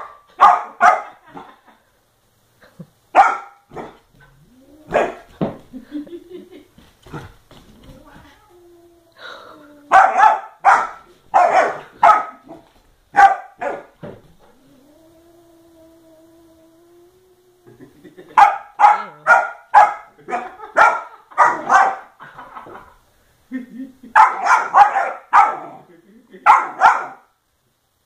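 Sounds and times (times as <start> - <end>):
puppy barking: 0.0 - 1.2, 3.2 - 4.0, 4.9 - 5.2, 9.9 - 14.0, 18.4 - 22.1, 24.2 - 25.8, 26.4 - 27.3.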